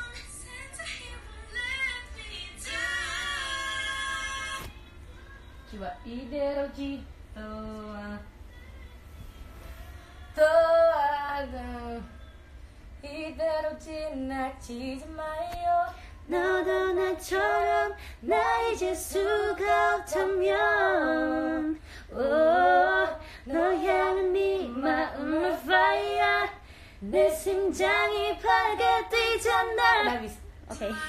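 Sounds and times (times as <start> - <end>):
woman singing unaccompanied: 5.4 - 9.0, 10.1 - 12.2, 13.0 - 31.0.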